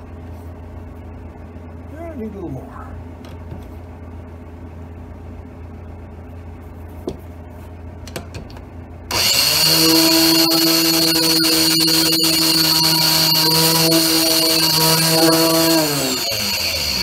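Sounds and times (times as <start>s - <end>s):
low steady hum: 0.0s - 9.2s
grinder motor whining: 9.1s - 17.0s.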